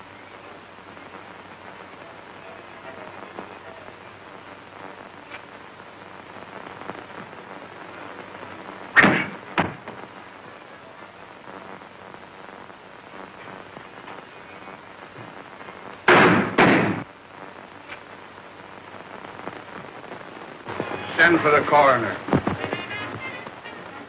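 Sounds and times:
film soundtrack hiss: 0:00.0 - 0:24.0
sharp bangs: 0:09.0 - 0:10.0, 0:16.0 - 0:17.1.

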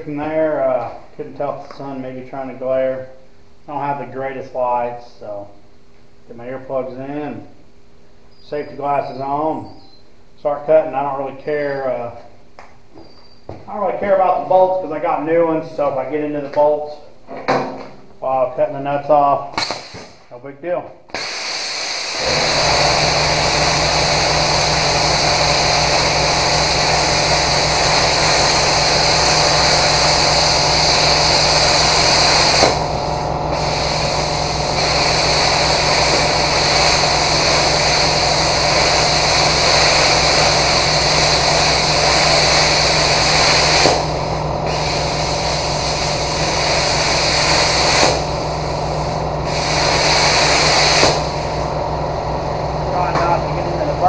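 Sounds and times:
steady low hum: 0:00.0 - 0:54.0
plasma cutter hissing: 0:19.5 - 0:20.3, 0:21.1 - 0:54.0.

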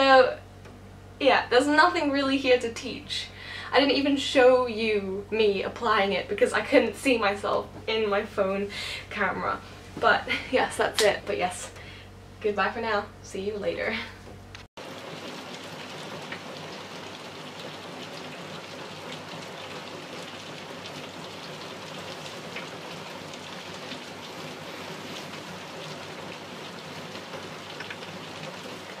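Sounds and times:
rain-like hiss: 0:14.8 - 0:29.0.

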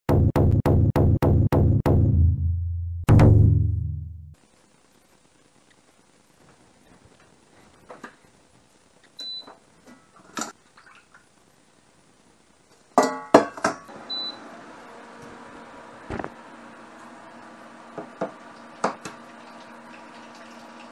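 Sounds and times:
metal pots clanking: 0:13.0 - 0:13.9
induction hob humming: 0:13.9 - 0:20.9.

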